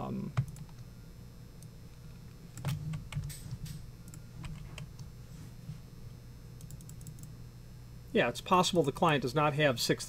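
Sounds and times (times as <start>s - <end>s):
computer keys clicking: 0.4s - 0.8s, 2.5s - 5.1s, 6.6s - 7.3s.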